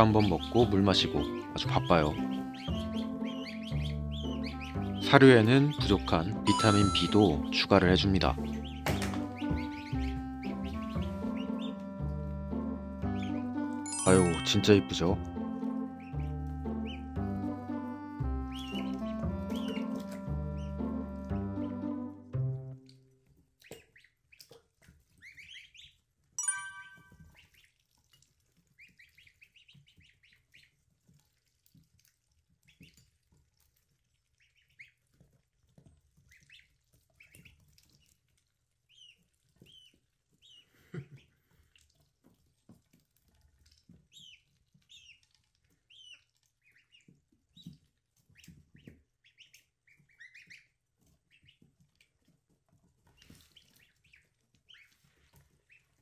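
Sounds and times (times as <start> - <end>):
harsh duckling call: 0.0 - 5.9
ducklings peeping: 0.0 - 52.4, 53.0 - 56.0.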